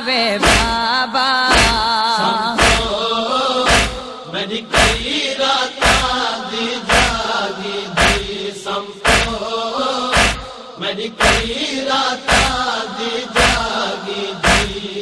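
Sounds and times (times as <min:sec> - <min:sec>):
men chanting a refrain: 0:00.3 - 0:00.9, 0:01.5 - 0:15.0
deep chest-beat thumps: 0:00.4 - 0:00.9, 0:01.5 - 0:01.9, 0:02.5 - 0:05.2, 0:05.8 - 0:06.3, 0:06.9 - 0:09.5, 0:10.1 - 0:11.6, 0:12.2 - 0:15.0.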